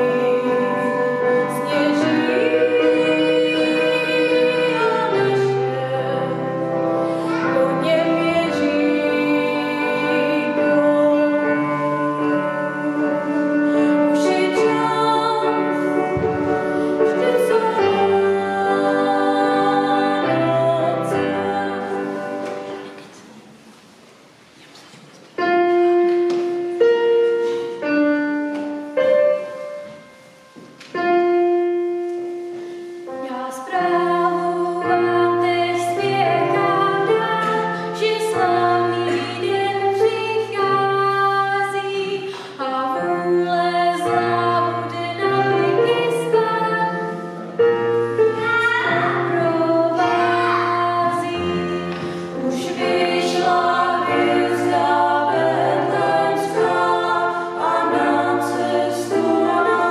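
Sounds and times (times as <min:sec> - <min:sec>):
woman singing: 0:00.0 - 0:06.6, 0:07.3 - 0:22.2, 0:33.2 - 0:47.2
several voices singing: 0:00.0 - 0:13.4, 0:14.0 - 0:23.0, 0:48.4 - 0:59.9.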